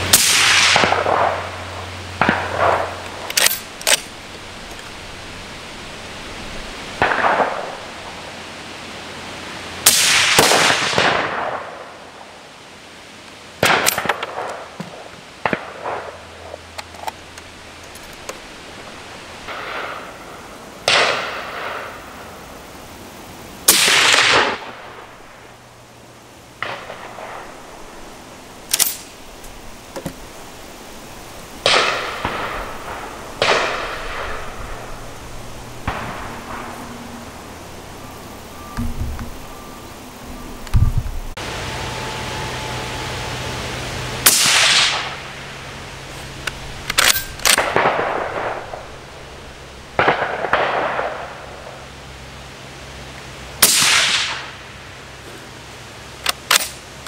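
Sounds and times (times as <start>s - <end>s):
suppressed rifle shots with echo: 0.1s - 1.6s, 7.0s - 7.8s, 20.9s - 21.8s, 44.2s - 45.2s, 47.0s - 48.9s, 50.0s - 51.3s, 53.6s - 54.5s.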